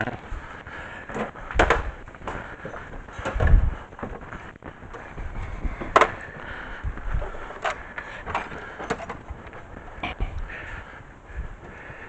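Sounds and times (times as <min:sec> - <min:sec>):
tools knocking and clinking: 0:07.6 - 0:09.3.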